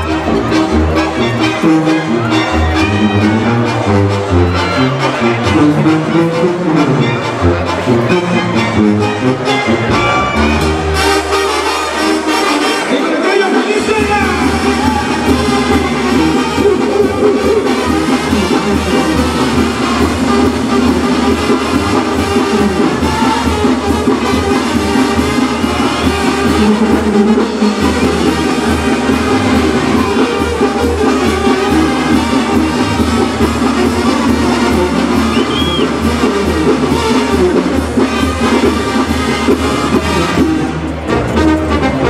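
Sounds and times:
brass band music: 0.0s - 42.0s
pulsing bass beat: 14.2s - 19.1s.

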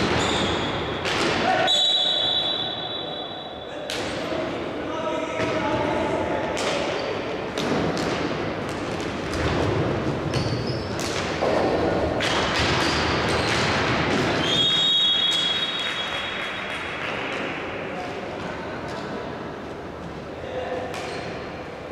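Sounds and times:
hockey sticks striking ball: 0.0s - 1.7s, 7.6s - 14.6s
crowd and court noise: 0.0s - 21.9s
referee's whistle: 1.6s - 3.6s, 14.4s - 16.2s.

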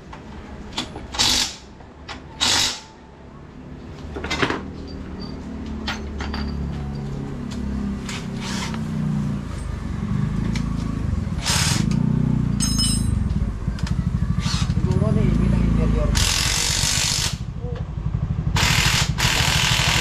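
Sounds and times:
metallic ring: 4.8s - 7.1s, 12.5s - 13.3s
motorcycle engine revving: 7.4s - 20.0s.

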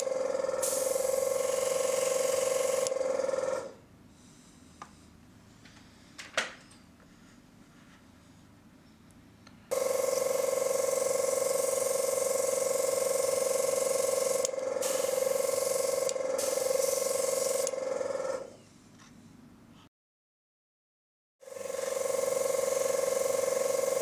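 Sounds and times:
compressor tone: 0.0s - 3.8s, 9.7s - 18.5s
airbrush spraying hiss: 0.6s - 3.0s, 9.7s - 17.8s.

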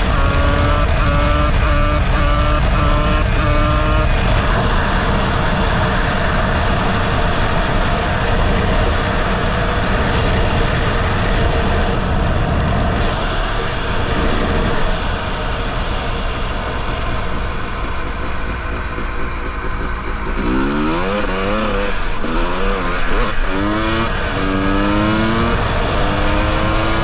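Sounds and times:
wind rush on microphone: 0.0s - 20.2s
dirt bike engine: 0.0s - 27.0s.

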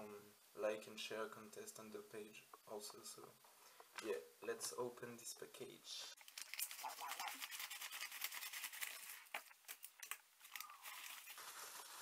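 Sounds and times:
envelope paper rustling: 6.2s - 12.0s
paper crinkling: 6.2s - 12.0s.

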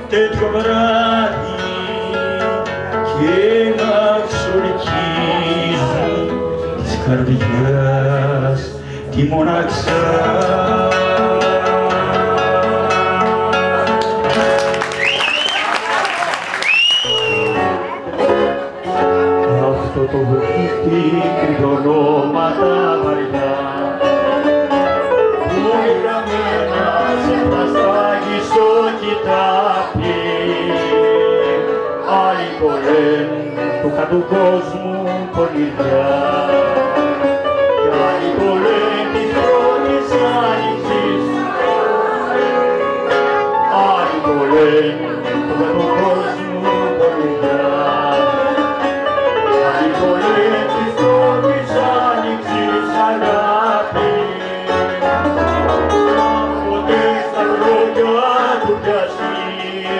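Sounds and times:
plucked string instrument: 0.0s - 15.2s, 16.7s - 59.9s
bouzouki melody: 0.0s - 15.4s, 16.7s - 59.9s
keyboard accompaniment: 0.0s - 59.9s.

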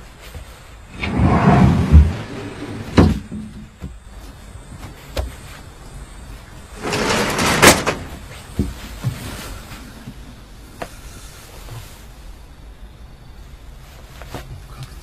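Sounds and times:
sliding door rolling on track: 0.9s - 3.4s, 6.8s - 8.3s.

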